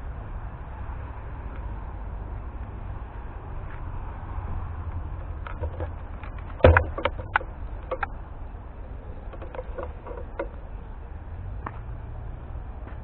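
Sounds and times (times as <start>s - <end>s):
camera mount clicks and knocks: 5.4s - 8.1s.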